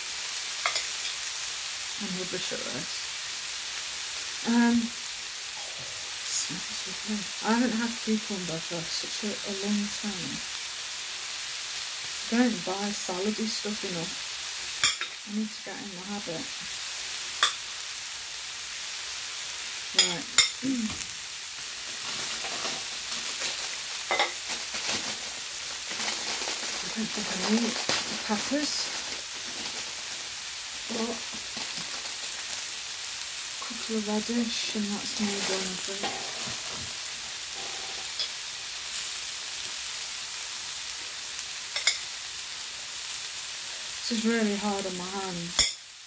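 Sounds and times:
food sizzling in a frying pan: 0:00.0 - 0:46.0
plastic packet crinkling: 0:21.7 - 0:33.0.

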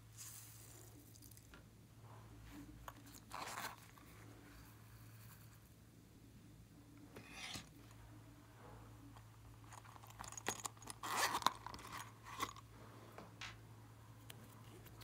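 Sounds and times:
plastic containers clicking and scraping: 0:09.6 - 0:12.7.

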